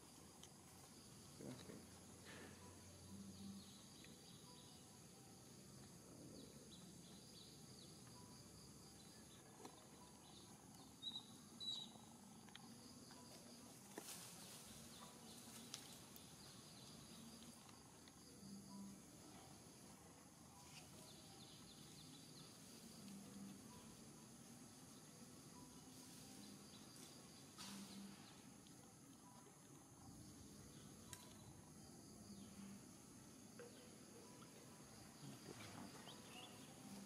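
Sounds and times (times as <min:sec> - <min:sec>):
high insect hum: 0:00.0 - 0:37.0.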